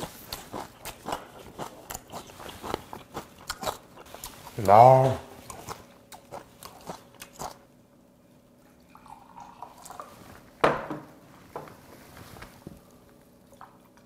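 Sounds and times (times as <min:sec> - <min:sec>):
beer pouring into glass: 0:08.9 - 0:10.1.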